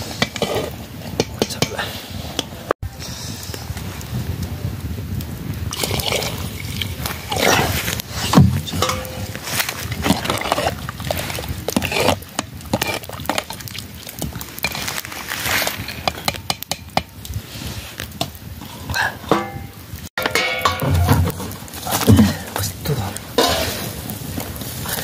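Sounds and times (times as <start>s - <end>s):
metal spoon stirring in pot: 5.7s - 15.0s, 20.2s - 21.4s
water pouring into pot: 5.7s - 16.1s.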